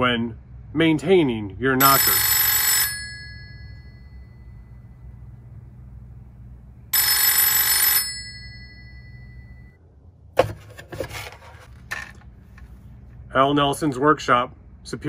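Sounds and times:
telephone bell ringing: 1.8s - 5.1s, 6.9s - 9.8s.

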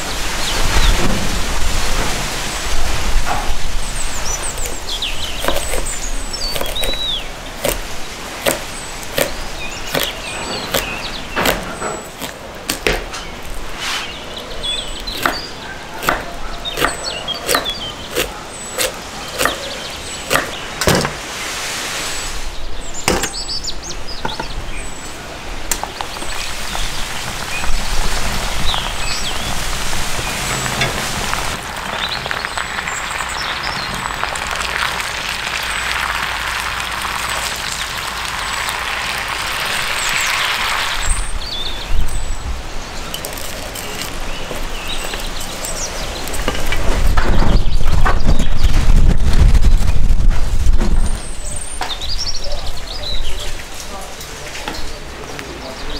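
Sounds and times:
small birds chirping: 3.3s - 20.9s, 22.2s - 49.9s, 51.0s - 55.9s
knife chopping on wooden board: 4.6s - 5.9s, 6.5s - 7.0s, 7.6s - 7.8s, 8.4s - 13.1s, 15.1s - 15.4s, 16.0s - 19.7s, 20.3s - 21.2s
potatoes sizzling in oil: 26.1s - 41.5s.

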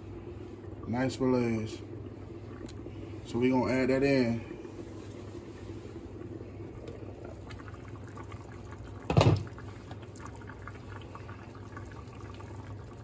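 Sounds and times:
low hum: 0.0s - 13.0s
stew boiling in a pot: 0.0s - 13.0s
glass lid clunk: 9.1s - 9.4s.

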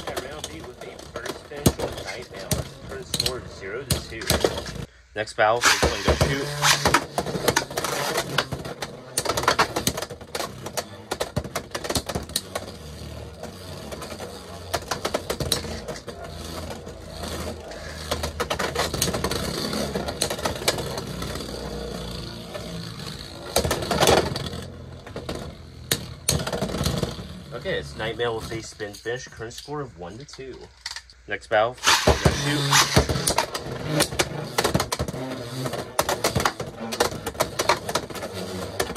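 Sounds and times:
spinning tops whirring: 5.6s - 30.4s, 31.8s - 38.9s
spinning tops colliding: 31.8s - 33.4s.

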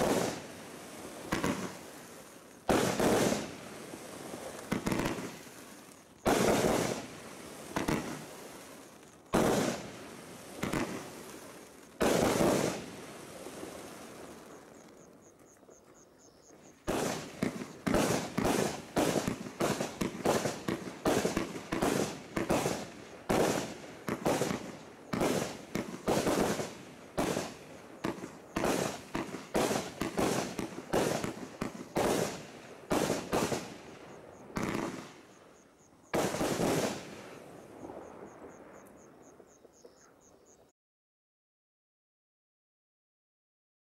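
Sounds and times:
firework shots: 0.0s - 14.8s, 16.8s - 35.4s, 36.1s - 38.8s.

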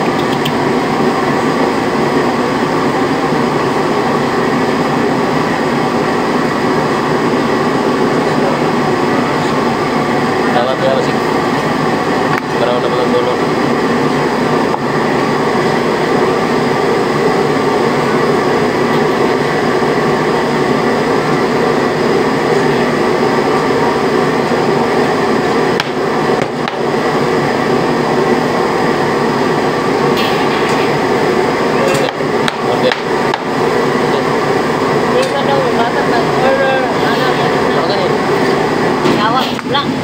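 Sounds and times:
loud steady rushing drone: 0.0s - 40.0s.

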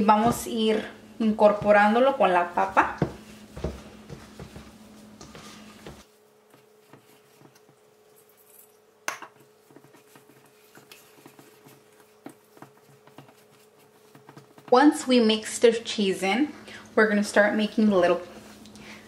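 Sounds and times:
hands kneading mashed potato: 1.4s - 15.7s.

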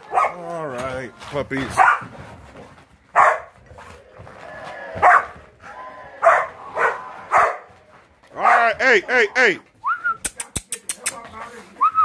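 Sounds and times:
dogs barking in play: 0.0s - 0.5s, 1.7s - 8.8s
dogs low rumbling: 3.4s - 8.6s.

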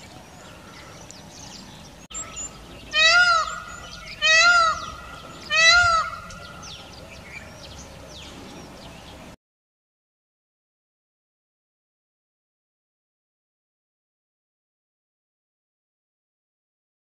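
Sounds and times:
peafowl calling: 1.7s - 7.6s.

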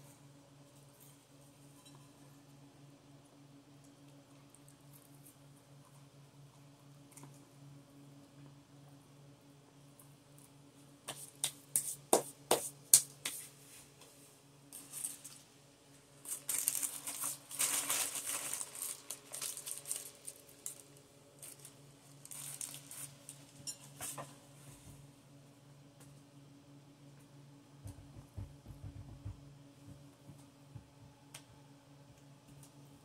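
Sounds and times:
steady low hum: 0.0s - 33.0s
paper wrapper crinkling: 16.2s - 23.6s.

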